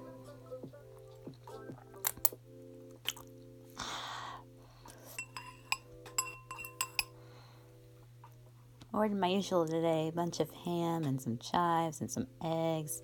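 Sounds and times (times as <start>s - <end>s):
tableware clinking: 5.1s - 7.2s.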